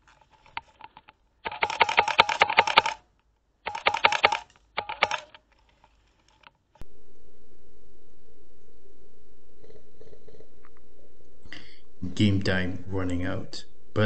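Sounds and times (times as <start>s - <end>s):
airsoft guns firing bursts: 1.4s - 3.0s, 3.6s - 5.4s.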